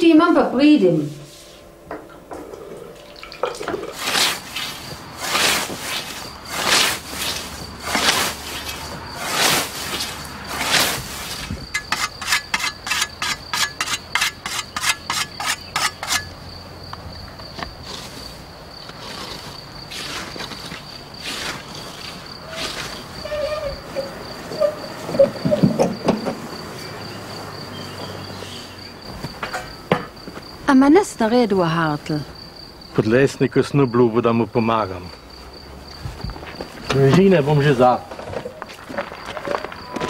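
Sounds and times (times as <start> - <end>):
crickets chirring: 0.0 - 40.0
scythe swishing through grass: 4.0 - 12.4, 19.1 - 23.1
whetstone sharpening scythe blade: 11.8 - 16.3.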